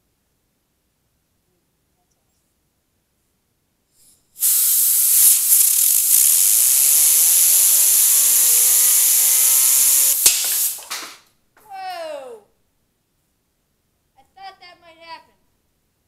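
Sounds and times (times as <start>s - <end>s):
compressed air hissing: 3.9s - 11.2s
spinner bearings whining: 4.4s - 10.9s
blow gun click: 4.4s - 11.2s.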